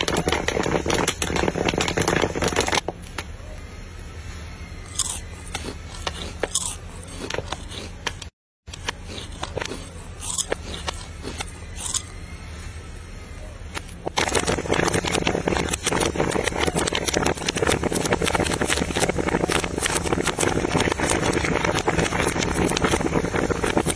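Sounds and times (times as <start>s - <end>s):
popcorn stirred in metal wok: 4.9s - 12.0s, 13.8s - 23.9s.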